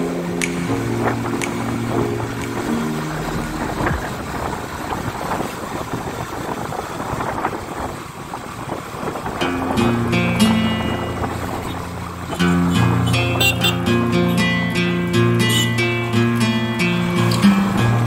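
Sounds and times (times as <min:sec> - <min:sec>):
background music: 0:00.0 - 0:04.7, 0:09.4 - 0:18.0
wind on microphone: 0:00.0 - 0:12.9.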